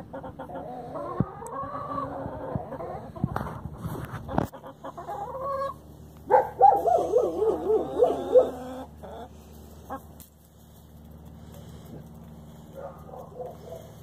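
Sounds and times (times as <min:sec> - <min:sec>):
animal calling: 0:06.5 - 0:10.0.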